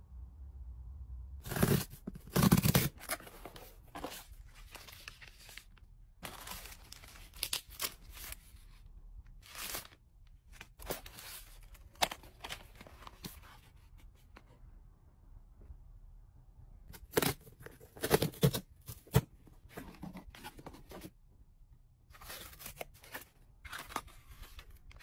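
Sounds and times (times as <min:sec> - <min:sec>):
packaging tearing: 0:01.4 - 0:03.5.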